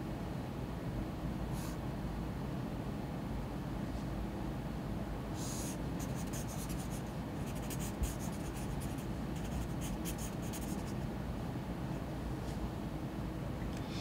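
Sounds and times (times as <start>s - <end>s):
low room hum: 0.0s - 14.0s
pen scratching on paper: 5.7s - 11.0s.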